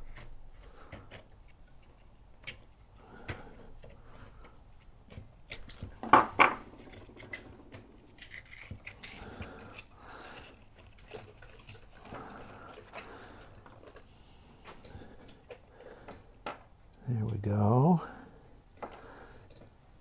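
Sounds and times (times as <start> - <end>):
lamp socket parts clicking and scraping: 0.0 - 14.1.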